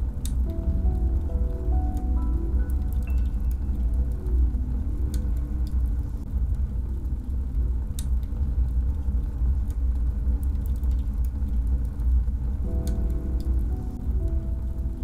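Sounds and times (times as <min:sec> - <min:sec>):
fire crackling and popping: 0:00.0 - 0:15.0
wood stove fire burning: 0:00.0 - 0:15.0.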